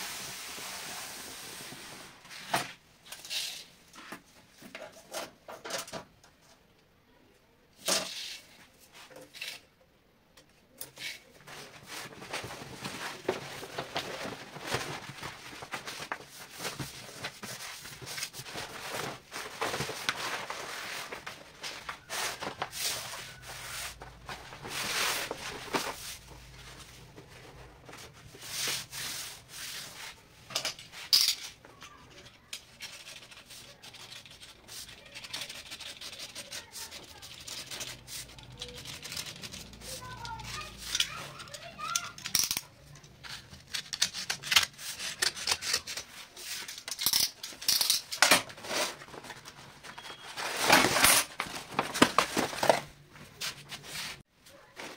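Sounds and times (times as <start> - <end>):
hands rubbing and scraping materials: 10.9 - 47.4
wallpaper sliding on wood: 20.2 - 30.2.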